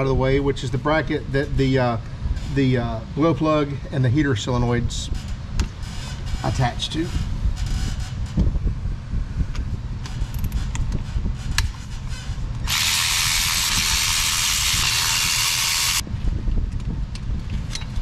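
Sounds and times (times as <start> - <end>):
air ratchet running: 12.6 - 16.0.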